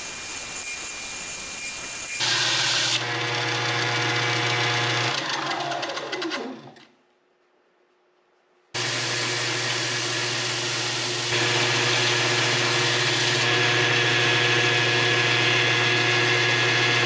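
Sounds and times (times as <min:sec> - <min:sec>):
belt sander grinding metal: 0:08.8 - 0:17.0.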